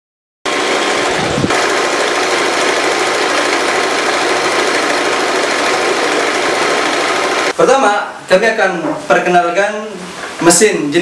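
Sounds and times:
sewing machine running: 0:00.5 - 0:07.6.

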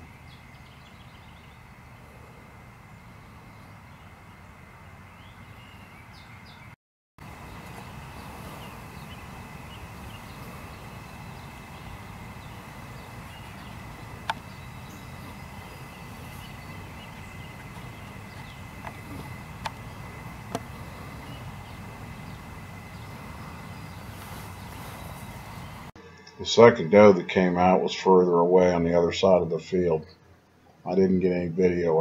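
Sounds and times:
faint high hum: 0:00.0 - 0:06.6, 0:07.2 - 0:32.0
sharp clicks: 0:14.2 - 0:14.5.

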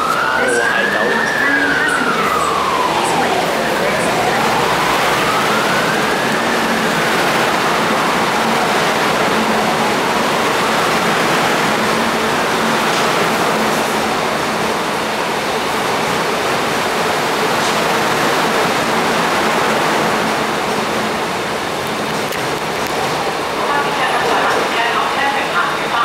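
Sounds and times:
whine gliding in pitch: 0:00.0 - 0:11.0
train rushing through station: 0:00.0 - 0:26.0.

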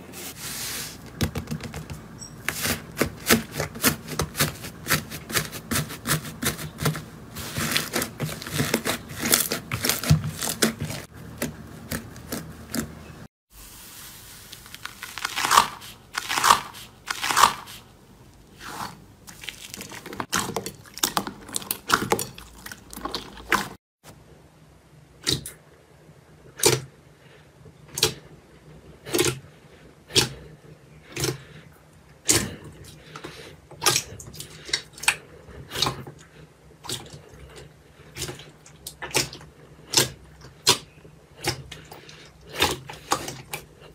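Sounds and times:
slime crackling and popping: 0:14.5 - 0:17.6.

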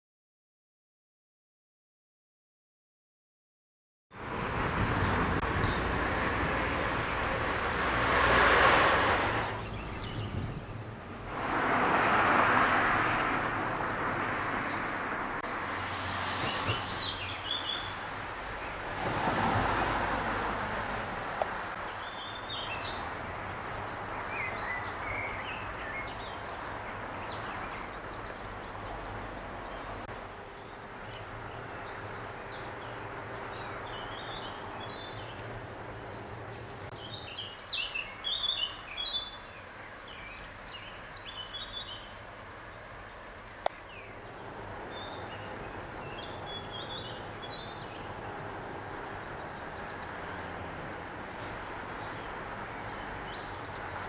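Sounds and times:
outdoor rushing noise: 0:04.1 - 0:22.0
birds chirping: 0:08.2 - 0:11.1, 0:12.6 - 0:20.8, 0:21.7 - 0:54.0.

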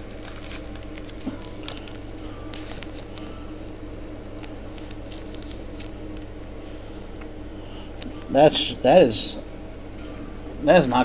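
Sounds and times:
trading cards clicking and rustling: 0:00.0 - 0:03.7, 0:04.3 - 0:06.4
steady low hum: 0:00.0 - 0:11.0.

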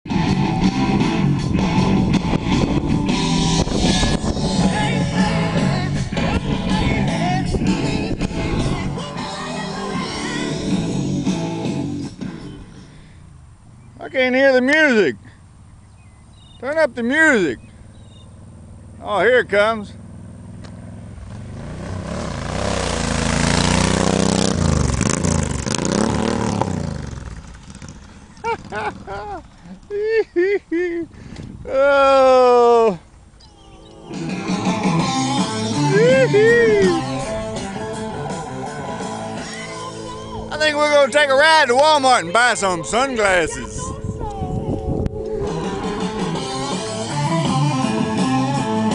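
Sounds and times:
rock guitar: 0:00.1 - 0:12.7, 0:33.6 - 0:41.2, 0:45.0 - 0:48.9
person singing: 0:03.8 - 0:11.0, 0:34.2 - 0:40.6
motorcycle engine passing by: 0:17.8 - 0:30.0, 0:33.5 - 0:40.6, 0:45.3 - 0:48.9.

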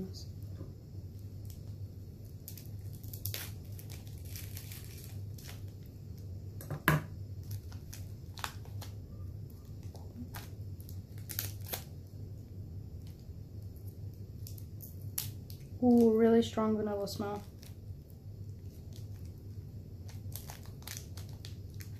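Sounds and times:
wrapper crinkling and tearing: 0:01.4 - 0:06.2, 0:07.4 - 0:12.1, 0:13.0 - 0:21.9.

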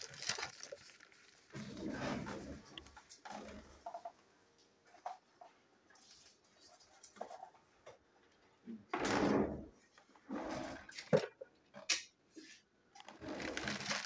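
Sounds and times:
plastic bag crinkling: 0:00.0 - 0:01.8, 0:12.9 - 0:14.0.

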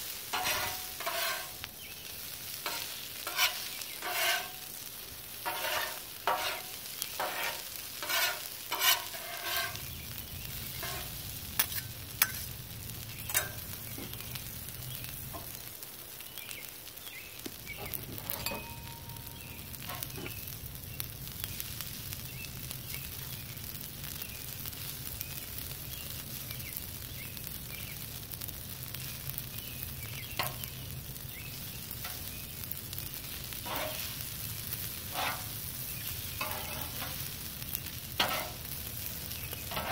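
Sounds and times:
food sizzling on a griddle: 0:00.0 - 0:39.9
metal spatulas clacking and scraping: 0:00.3 - 0:01.6, 0:02.6 - 0:04.5, 0:05.4 - 0:06.6, 0:07.2 - 0:09.8, 0:13.3 - 0:13.6, 0:18.2 - 0:19.0, 0:33.6 - 0:34.1, 0:35.1 - 0:35.4, 0:36.4 - 0:37.2, 0:38.2 - 0:38.6.

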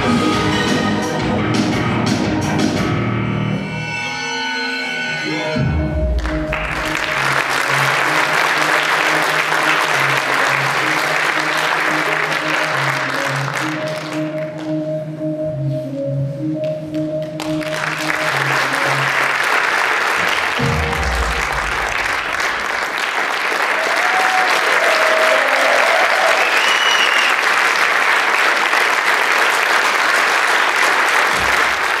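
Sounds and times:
music: 0:00.0 - 0:32.0
audience applauding: 0:06.2 - 0:14.7, 0:17.4 - 0:32.0
deep falling boom: 0:20.6 - 0:22.6.

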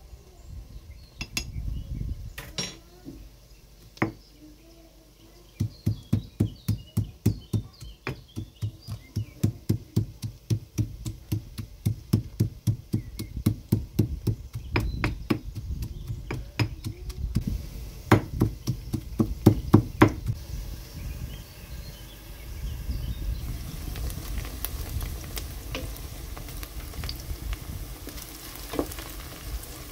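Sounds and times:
stone pestle pounding in mortar: 0:05.6 - 0:17.2, 0:18.1 - 0:20.4.

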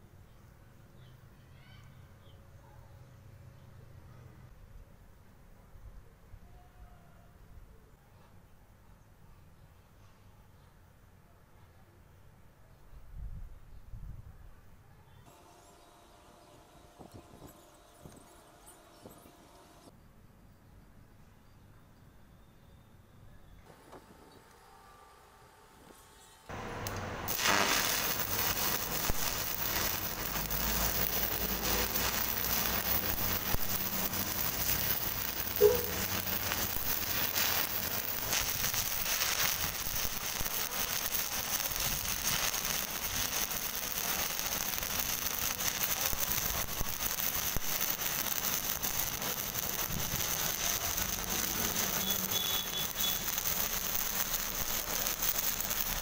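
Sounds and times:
arc welding: 0:26.5 - 0:56.0
sharp welding pops: 0:26.5 - 0:56.0.

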